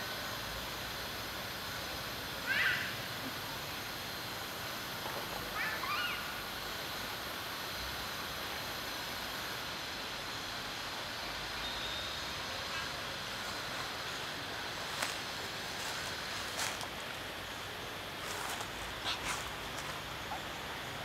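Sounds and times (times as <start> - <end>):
outdoor background hiss: 0.0 - 21.0.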